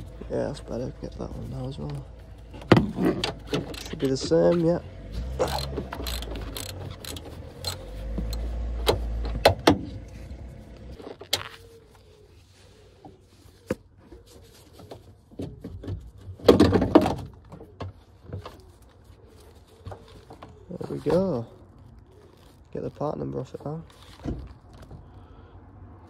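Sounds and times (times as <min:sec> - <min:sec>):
socket ratchet clicking: 0:05.5 - 0:08.4
scraping rustle: 0:18.1 - 0:25.0.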